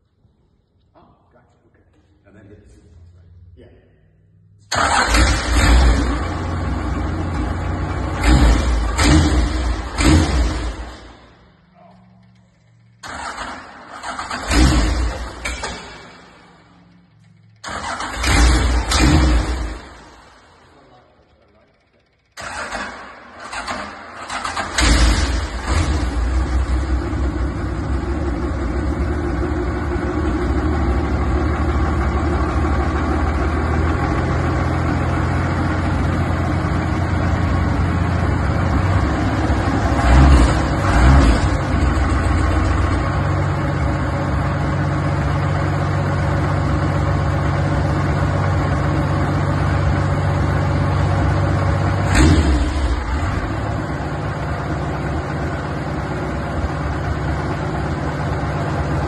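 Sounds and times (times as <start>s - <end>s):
tractor engine idling and revving: 4.6s - 59.0s
tractor engine starter cranking: 4.7s - 6.7s, 12.4s - 20.0s, 21.9s - 26.4s.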